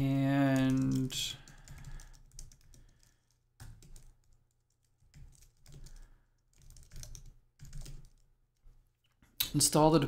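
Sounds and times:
typing on computer keyboard: 0.4 - 8.3.

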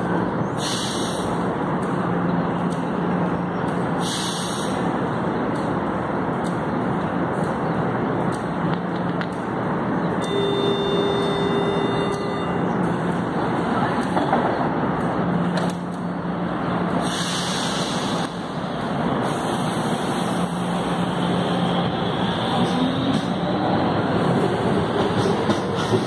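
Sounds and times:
train equipment humming: 0.0 - 26.0
train door hiss: 0.6 - 1.4, 4.0 - 4.9, 17.0 - 18.4, 19.2 - 20.7.

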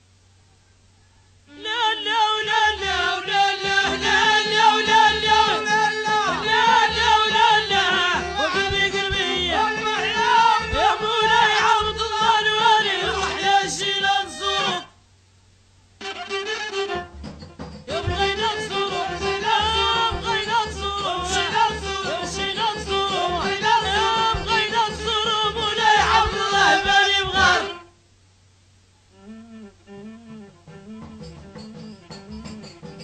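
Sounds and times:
ornamented folk melody: 2.8 - 14.9
low pulsing beat: 3.7 - 12.5.

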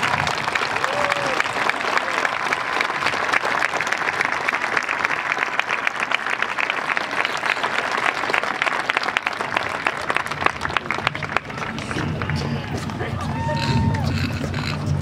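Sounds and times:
large crowd applauding: 0.0 - 15.0.

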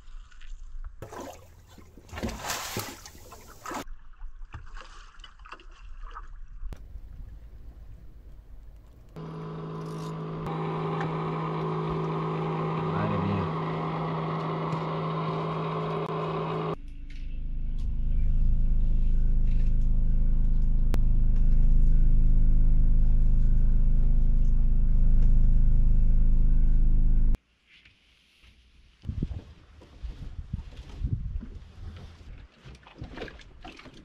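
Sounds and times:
boat engine running: 6.8 - 27.4.

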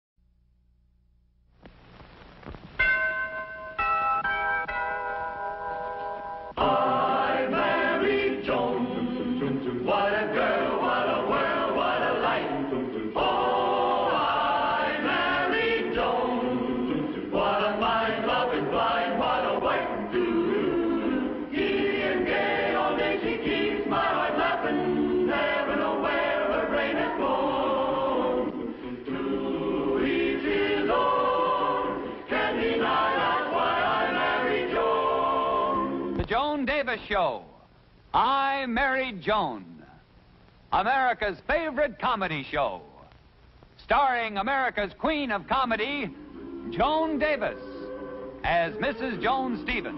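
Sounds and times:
choir singing theme song: 6.4 - 36.3, 45.5 - 49.9.

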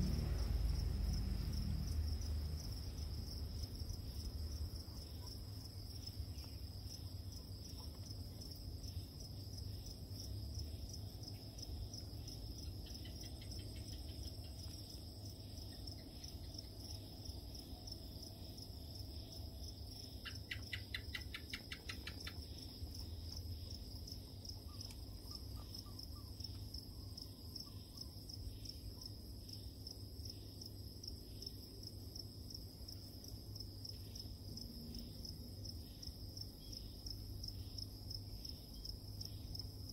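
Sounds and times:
fast pulsing insect trill: 0.0 - 7.9
insects chirring: 0.0 - 39.9.

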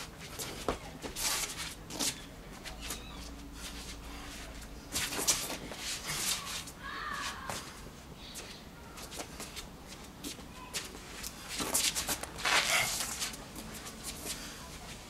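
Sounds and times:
feet scuffing on stone paving: 0.2 - 15.0.

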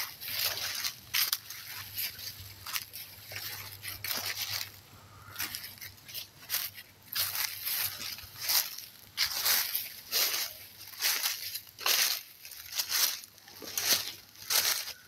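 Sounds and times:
footsteps crunching dry leaves: 0.0 - 15.0.

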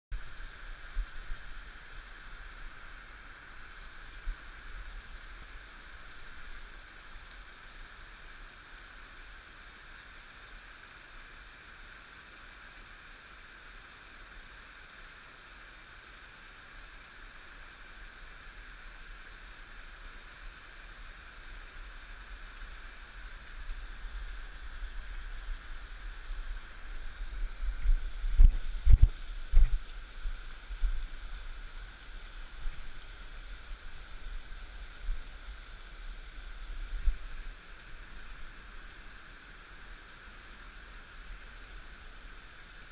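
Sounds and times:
creek running over stones: 0.2 - 42.9
low thumps on microphone: 27.3 - 31.1.

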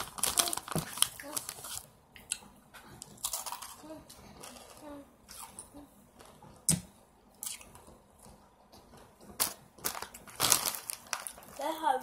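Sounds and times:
chewing crunchy chips: 0.0 - 5.7.

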